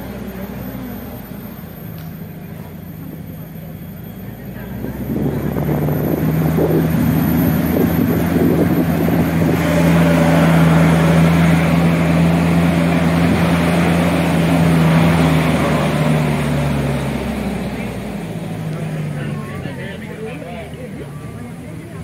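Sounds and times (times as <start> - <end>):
road and wind noise: 0.0 - 22.0
shuttle engine humming: 0.0 - 22.0.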